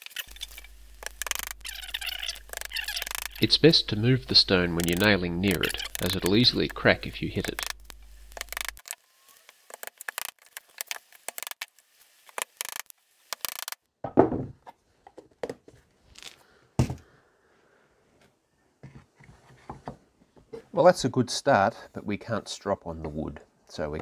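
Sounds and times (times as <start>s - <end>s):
knocks and thuds on board: 14.0s - 14.6s.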